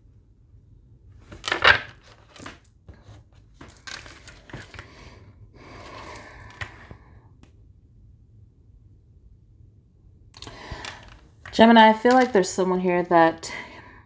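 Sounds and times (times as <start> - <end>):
cards rustling and sliding: 1.2 - 5.1, 5.7 - 7.0, 10.4 - 12.4.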